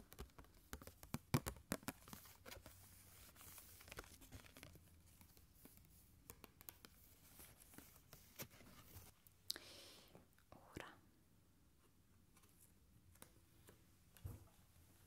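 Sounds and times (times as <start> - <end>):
soft papery rustle: 1.7 - 9.3.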